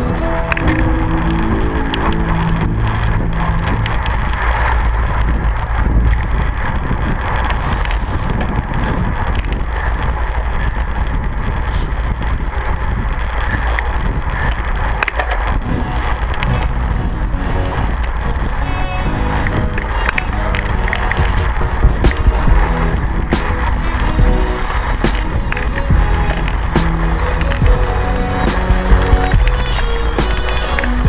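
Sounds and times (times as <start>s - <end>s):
bike road rumble: 0.0s - 31.0s
wind rushing over microphone: 0.0s - 31.0s.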